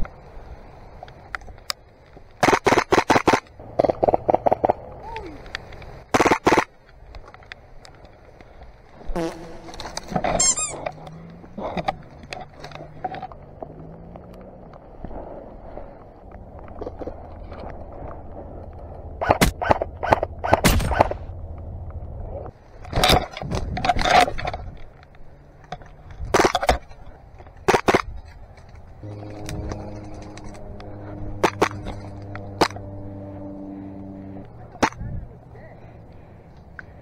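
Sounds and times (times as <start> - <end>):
airsoft guns firing: 2.4 - 3.5, 6.1 - 6.7
low pitched hum: 9.0 - 22.8, 28.2 - 37.0.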